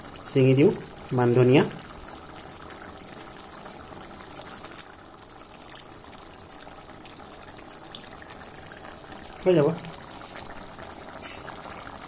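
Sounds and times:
curry bubbling in a wok: 0.0s - 12.0s.

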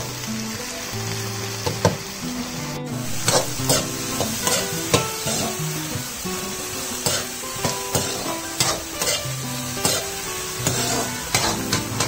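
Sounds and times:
food sizzling in oil: 0.0s - 12.0s
spoon scraping pan: 3.2s - 4.7s, 7.0s - 12.0s.

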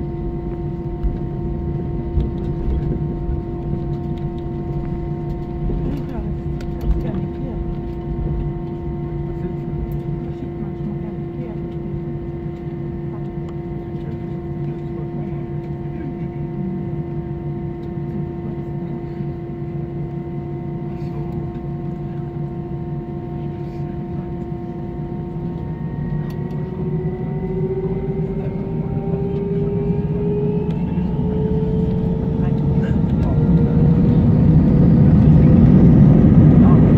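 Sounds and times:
jet engines whining: 0.0s - 36.9s.

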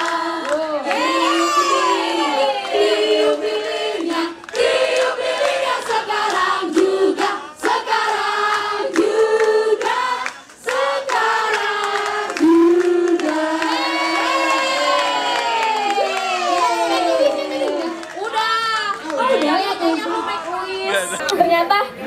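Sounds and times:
group singing: 0.0s - 15.6s.

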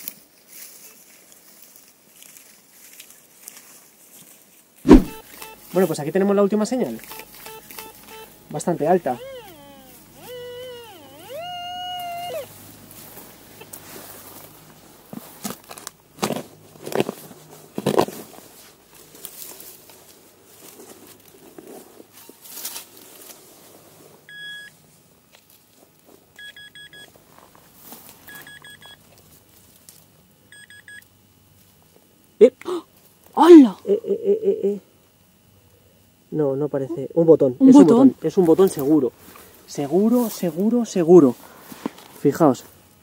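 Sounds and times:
quick high electronic beeps: 4.9s - 5.8s
metal detector warbling tone: 4.9s - 6.0s, 6.8s - 12.5s.

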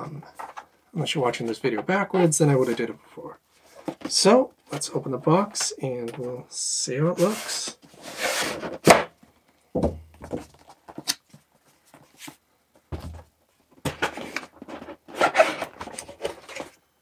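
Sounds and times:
cardboard scraping and rustling: 7.2s - 9.0s, 13.9s - 16.8s.

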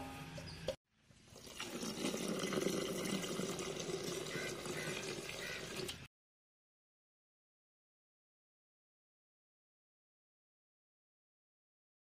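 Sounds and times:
water pouring into a pot: 1.2s - 6.0s.

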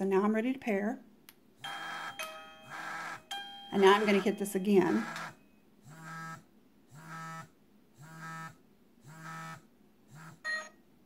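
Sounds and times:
chime receiver buzzing pulses: 1.6s - 5.6s.

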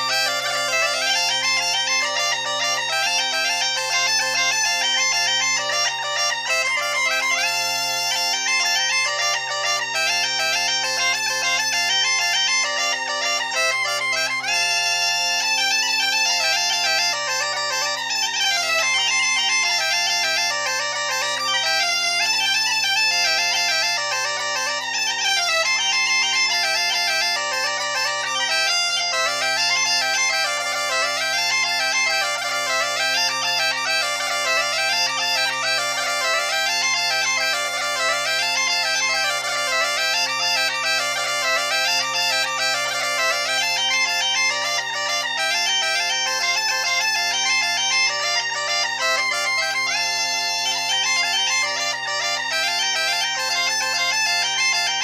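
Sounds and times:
bagpipe drone: 0.0s - 55.0s
bagpipes playing a lively melody: 0.0s - 55.0s.

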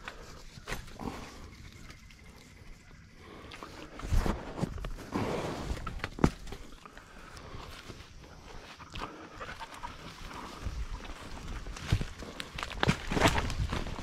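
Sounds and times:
footsteps crunching through grass: 3.9s - 14.0s.

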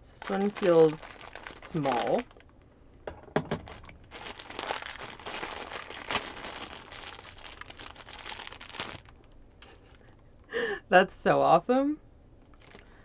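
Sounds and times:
plastic bag crinkling: 0.0s - 2.6s, 3.4s - 9.9s, 12.5s - 13.0s.

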